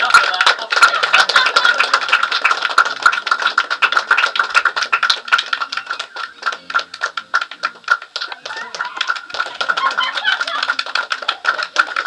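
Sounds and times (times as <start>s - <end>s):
people clapping: 0.0s - 12.0s.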